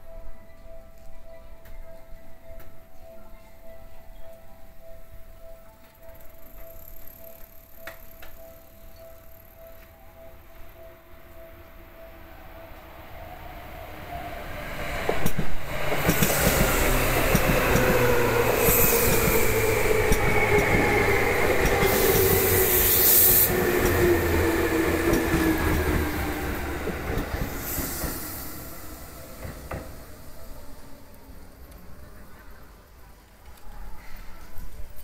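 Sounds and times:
train wheels rumbling over rails: 14.1 - 31.9
train brake whine: 14.8 - 31.4
high hissing squeals: 18.2 - 24.8, 27.4 - 30.8.

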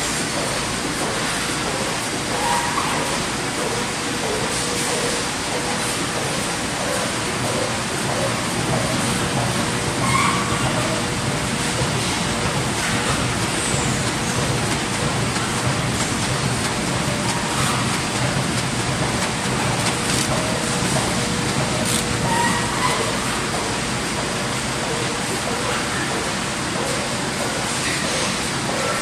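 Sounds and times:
printing machine running: 0.0 - 29.0.

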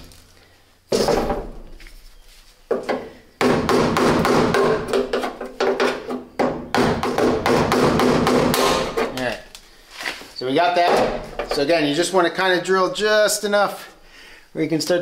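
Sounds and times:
rapid knocks and scraping: 2.7 - 9.3.

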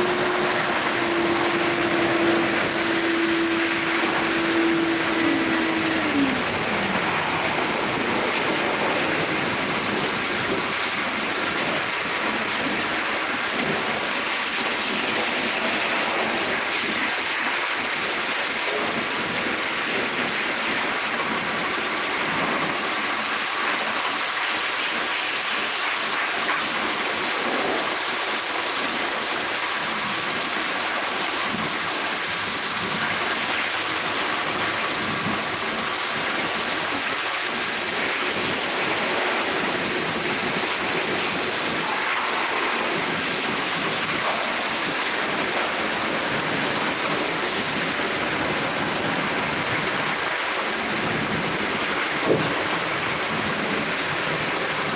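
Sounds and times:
machine motor whine: 0.0 - 8.4.

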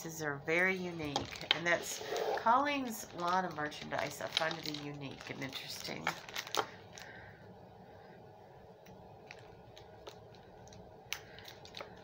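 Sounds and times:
plastic bag clicks and crinkles: 1.0 - 1.7, 2.8 - 7.1, 9.2 - 12.0.

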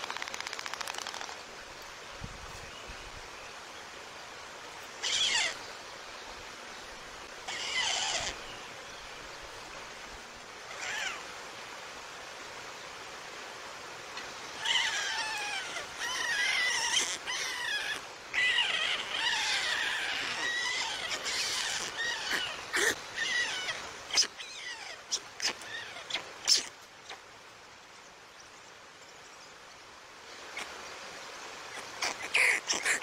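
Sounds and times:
faint outdoor hiss: 0.0 - 33.0
stork chicks calling: 14.6 - 26.7.

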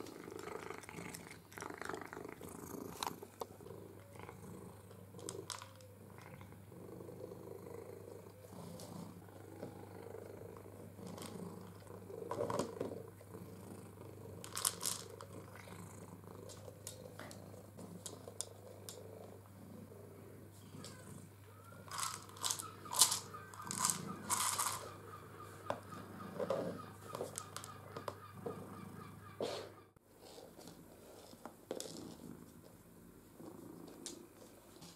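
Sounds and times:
plastic ball rattling on floor: 14.4 - 15.3, 21.9 - 24.9.

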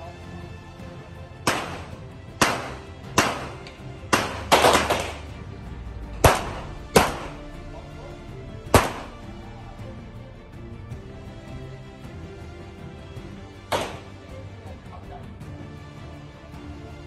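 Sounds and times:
background music: 0.0 - 17.0
handgun shots echoing: 1.5 - 5.3, 6.2 - 7.4, 8.8 - 9.2, 13.7 - 14.1.

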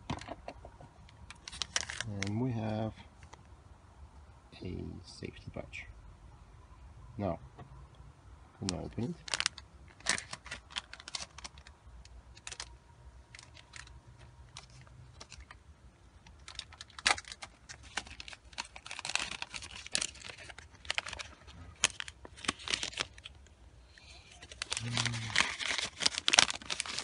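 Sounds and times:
packaging crinkling and clicking: 1.3 - 2.4, 8.6 - 15.6, 16.2 - 23.5, 24.3 - 27.0.

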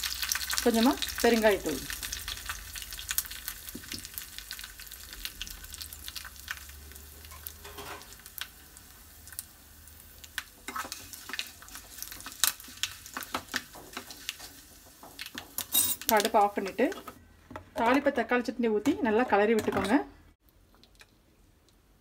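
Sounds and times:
spices sizzling in hot oil: 0.0 - 17.2
spoon scraping in pan: 7.2 - 8.2, 10.6 - 17.2.

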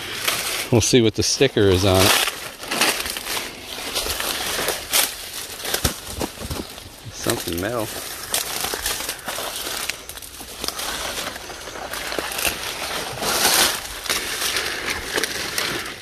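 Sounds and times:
footsteps crunching through dry leaves: 0.0 - 16.0
palm fronds rustling: 0.0 - 16.0.

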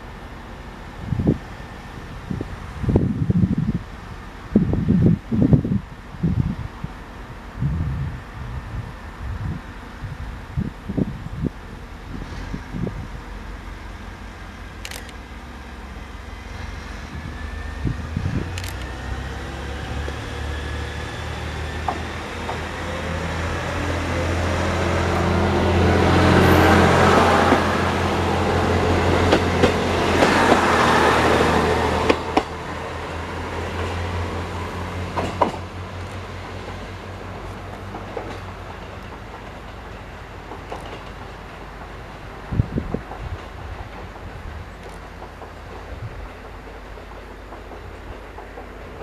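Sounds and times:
diesel railcar engine droning: 0.0 - 49.0
sharp clacks of passing train: 11.7 - 49.0.

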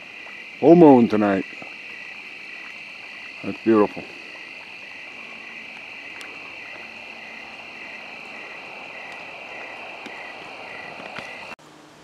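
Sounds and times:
insect high trill: 0.0 - 11.6
pulsing insect call: 0.0 - 11.6
faint clicks: 5.7 - 6.9, 8.4 - 11.6.

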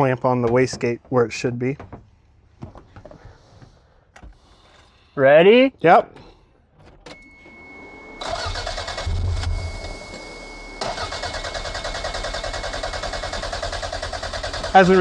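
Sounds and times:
thin steady high tone: 7.1 - 11.7
car engine cranking: 8.2 - 15.0.

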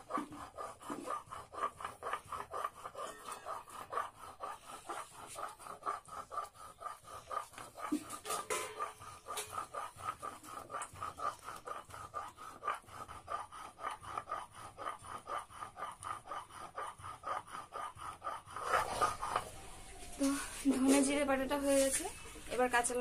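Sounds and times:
stone roller grinding on stone: 0.0 - 23.0.

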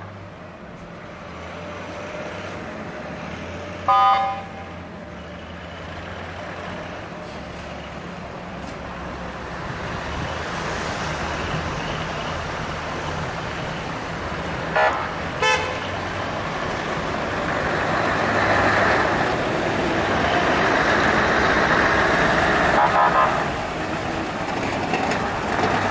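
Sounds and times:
vehicle engine and traffic: 0.0 - 25.9
horn toots: 3.9 - 4.7, 14.7 - 15.9, 22.7 - 23.6.

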